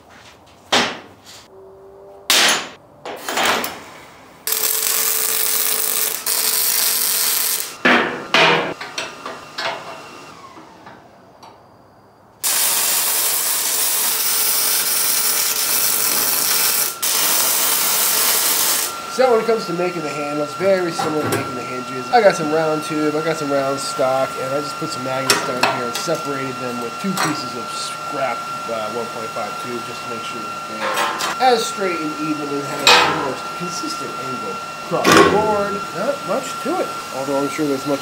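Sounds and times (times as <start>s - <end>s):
welder hissing: 3.2s - 8.4s, 12.4s - 38.0s.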